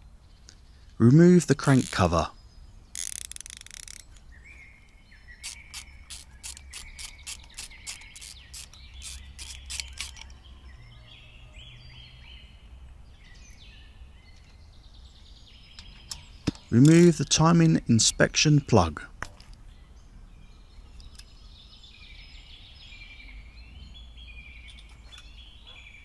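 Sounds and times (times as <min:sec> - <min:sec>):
faint birds chirping: 0:00.0 - 0:26.0
ratcheting screwdriver clicking: 0:03.0 - 0:04.2, 0:05.4 - 0:10.4.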